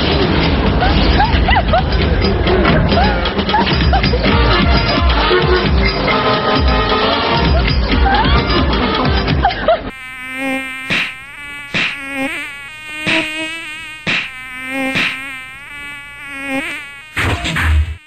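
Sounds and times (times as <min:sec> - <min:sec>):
housefly buzzing: 0:09.9 - 0:18.0
fly swatter swats: 0:10.8 - 0:15.5.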